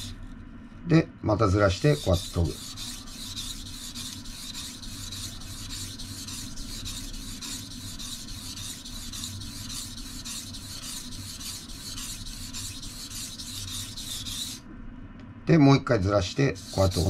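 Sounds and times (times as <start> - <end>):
knife grinding on whetstone: 1.8 - 14.6, 16.6 - 17.0.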